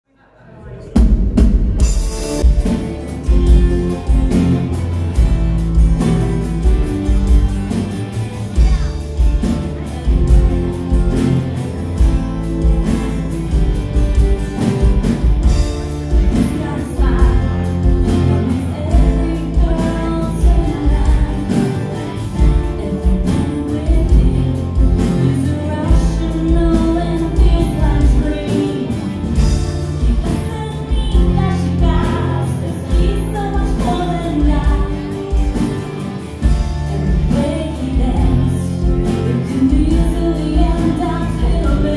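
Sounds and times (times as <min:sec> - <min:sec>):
drums: 0:00.3 - 0:41.9
bass guitar: 0:00.8 - 0:41.9
electric guitar: 0:01.1 - 0:41.9
strummed acoustic guitar: 0:01.8 - 0:41.9
woman singing: 0:16.1 - 0:35.7, 0:36.9 - 0:41.9.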